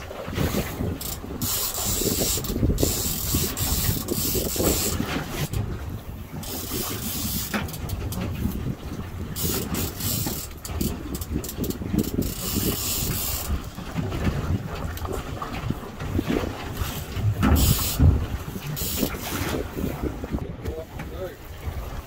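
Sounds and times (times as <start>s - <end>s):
boat engine rumble: 0.0s - 22.0s
wind buffeting microphone: 0.0s - 22.0s
mechanical clicking and rattling: 0.8s - 5.6s, 9.3s - 13.7s.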